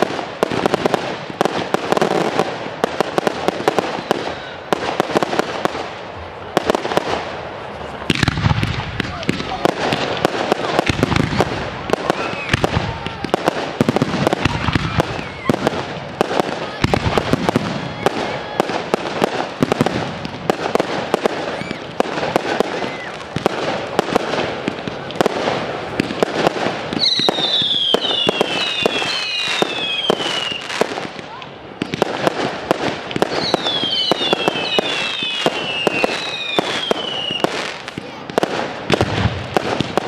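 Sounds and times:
fireworks bangs and crackling: 0:00.0 - 0:40.0
falling firework whistles: 0:03.7 - 0:04.6, 0:11.9 - 0:12.8, 0:21.3 - 0:23.4, 0:27.0 - 0:30.8, 0:33.2 - 0:37.8.

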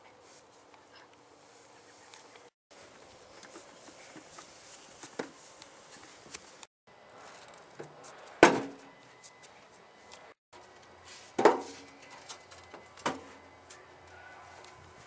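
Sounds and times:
metal wheelbarrow banging on concrete: 0:11.4 - 0:11.8.

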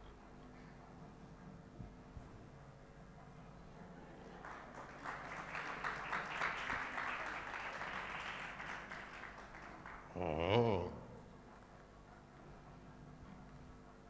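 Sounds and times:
audience applauding: 0:04.3 - 0:10.9.

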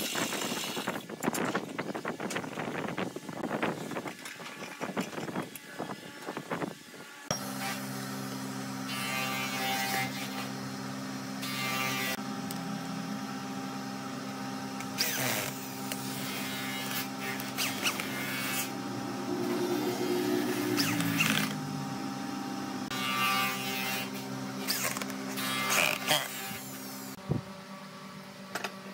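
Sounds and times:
workshop motor hum: 0:00.0 - 0:28.9
power tool running up: 0:07.2 - 0:27.2.

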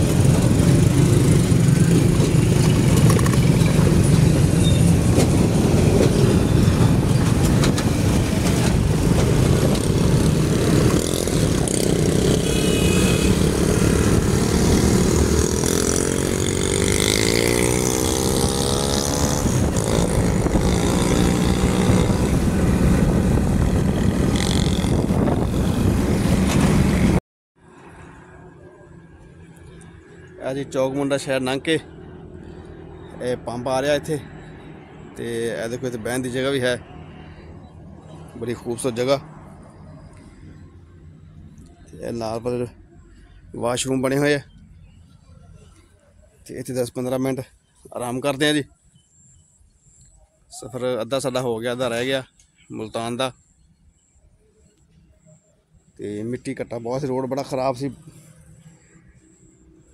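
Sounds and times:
vehicle engine rumble: 0:00.0 - 0:46.9
road noise: 0:00.0 - 0:59.9.

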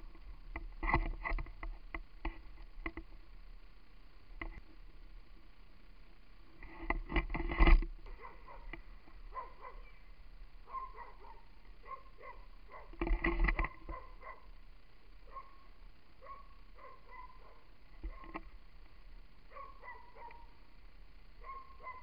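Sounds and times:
camera rumble and clatter: 0:00.0 - 0:03.4, 0:04.3 - 0:05.0, 0:06.5 - 0:10.0, 0:10.6 - 0:14.6, 0:16.2 - 0:18.9.

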